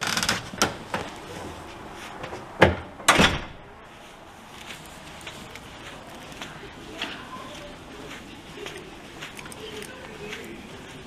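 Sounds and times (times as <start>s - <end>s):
door thudding shut: 2.6s - 3.6s.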